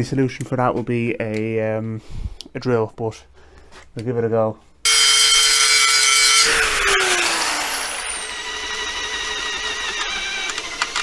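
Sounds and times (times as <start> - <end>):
angle grinder grinding steel: 4.9 - 11.0
cordless drill drilling steel: 4.9 - 11.0.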